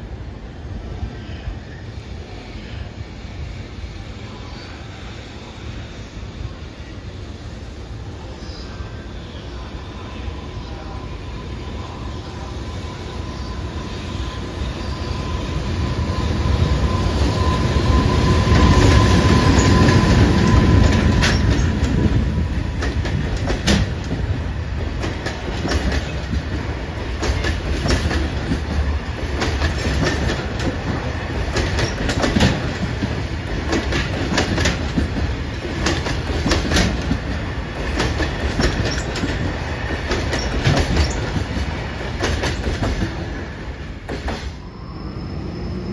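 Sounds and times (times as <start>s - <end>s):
freight train rumble: 0.0s - 45.9s
steady high tone: 44.6s - 45.9s.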